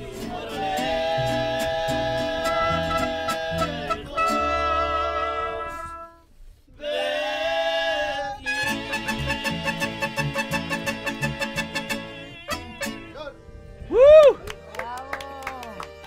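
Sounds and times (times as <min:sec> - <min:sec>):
band music with singing: 0:00.0 - 0:04.6, 0:08.5 - 0:13.1
strummed rhythm: 0:08.6 - 0:13.2.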